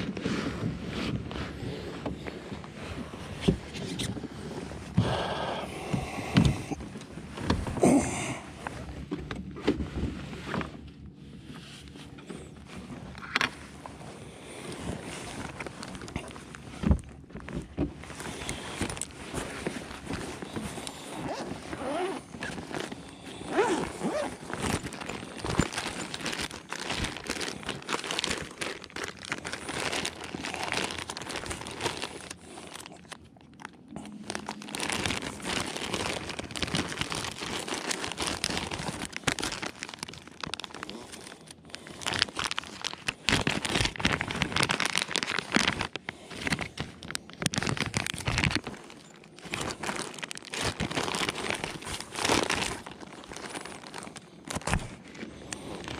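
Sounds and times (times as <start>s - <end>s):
plastic bags crinkling: 12.7s - 55.9s.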